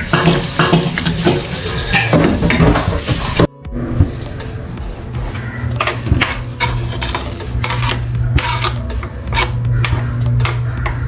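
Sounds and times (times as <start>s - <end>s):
spatula stirring in metal pot: 6.2s - 11.0s
scraping greens off wooden board: 6.6s - 10.1s.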